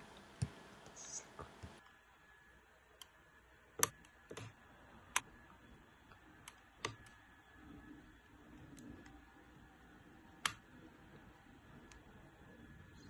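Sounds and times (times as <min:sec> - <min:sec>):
blade cutting wire insulation: 0:02.9 - 0:05.4, 0:06.1 - 0:09.3, 0:09.9 - 0:12.2.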